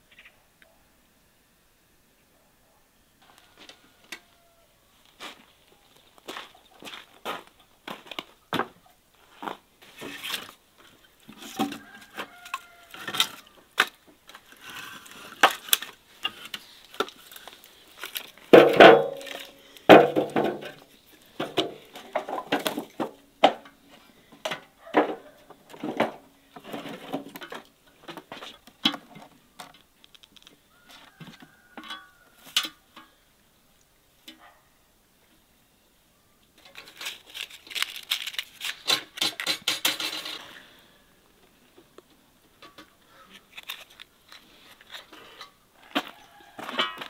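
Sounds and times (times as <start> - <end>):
firewood knocking and clattering: 17.0 - 30.5.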